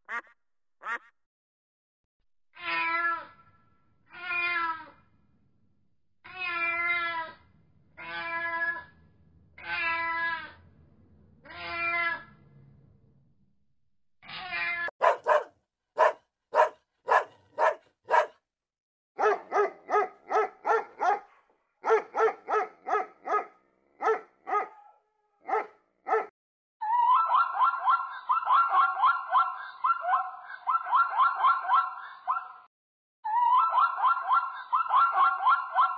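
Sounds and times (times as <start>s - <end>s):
cat meowing: 9.6s - 10.6s, 11.5s - 12.3s
dog barking: 15.0s - 18.4s, 19.2s - 26.3s, 27.6s - 32.7s, 34.0s - 35.9s.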